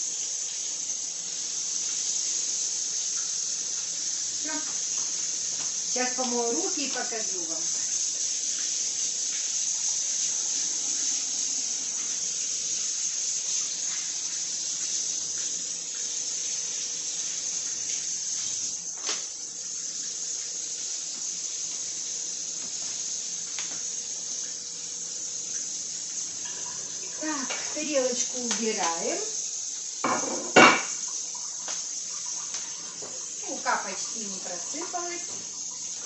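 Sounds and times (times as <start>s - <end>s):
tap running into sink: 17.6s - 19.4s, 22.5s - 24.0s, 26.3s - 29.1s, 29.9s - 33.7s, 34.9s - 36.0s.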